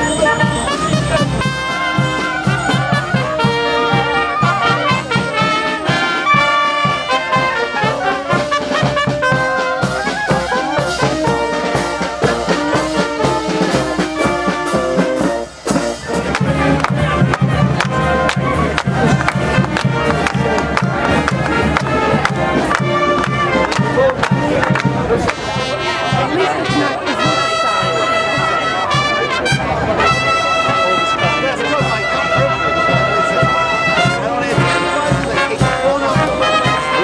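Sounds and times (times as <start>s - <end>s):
trumpets and saxophone: 0.0s - 37.0s
snare and bass drum beat: 0.8s - 25.7s.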